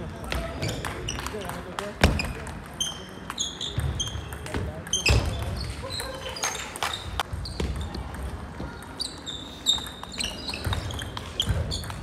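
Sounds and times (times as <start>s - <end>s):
table tennis ball hits: 0.3s - 5.7s, 9.8s - 12.0s.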